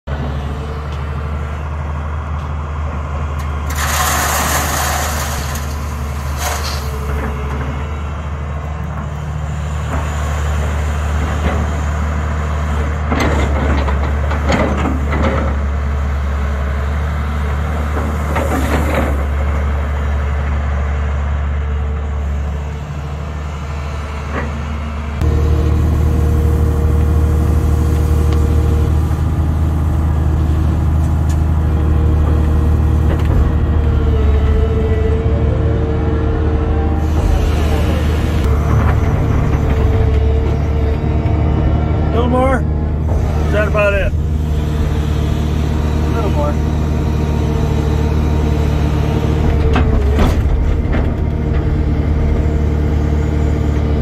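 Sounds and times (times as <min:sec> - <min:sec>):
excavator diesel engine running: 0:00.1 - 0:54.0
gravel crunching and pouring: 0:03.5 - 0:07.2.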